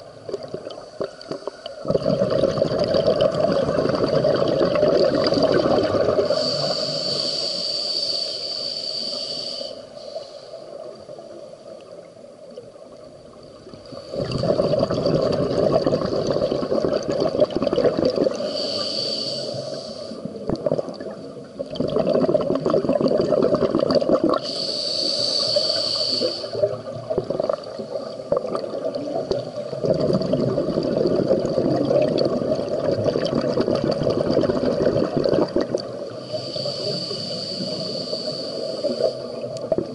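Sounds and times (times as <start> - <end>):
exhaled bubbles rumbling: 0.0 - 6.4, 12.9 - 18.5, 20.2 - 24.5, 26.6 - 36.3
regulator inhalation hiss: 6.2 - 10.9, 18.3 - 20.4, 24.4 - 26.9, 36.1 - 39.6.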